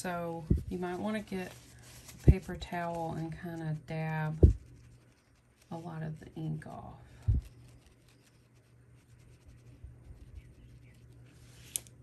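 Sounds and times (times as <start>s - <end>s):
marker tip dabbing on paper towel: 3.5s - 5.1s
low thump: 4.4s - 4.6s.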